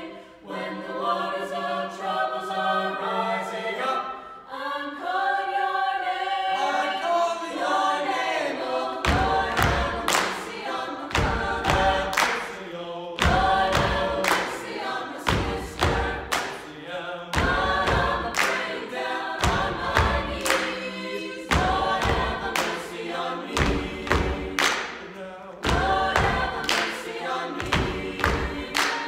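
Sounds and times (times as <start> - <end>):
vocal ensemble singing a cappella: 0.0 - 29.0
foot stomps and hand claps: 27.6 - 29.0.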